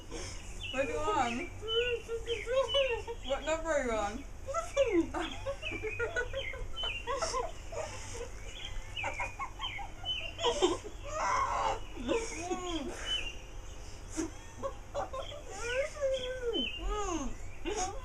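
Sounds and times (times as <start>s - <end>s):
girls giggling and squealing: 4.5s - 13.3s, 14.1s - 16.7s.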